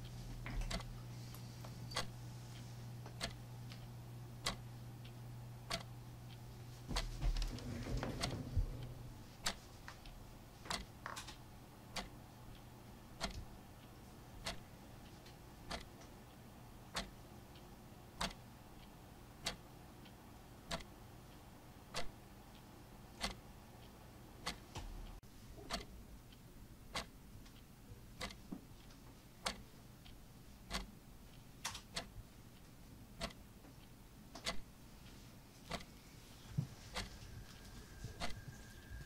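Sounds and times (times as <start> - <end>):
faint low hum: 0.0 - 39.0
slow even ticking: 0.7 - 11.0, 11.8 - 14.7, 15.6 - 36.0.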